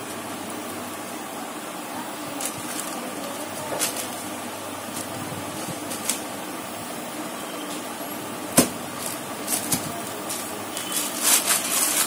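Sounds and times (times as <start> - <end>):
steady background hum: 0.0 - 12.0
plastic sheet rustling: 2.2 - 6.4, 8.6 - 12.0.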